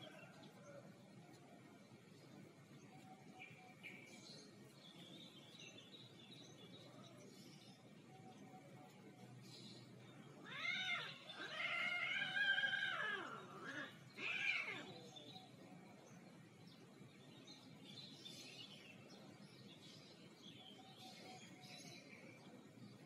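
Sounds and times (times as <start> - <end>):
cat yowling: 10.4 - 15.0.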